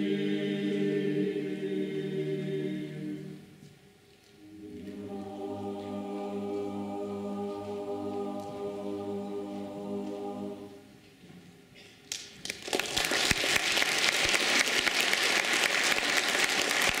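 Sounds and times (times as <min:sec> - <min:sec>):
boys' choir singing a chord: 0:00.0 - 0:03.5, 0:04.4 - 0:10.9
audience applause: 0:12.4 - 0:17.0.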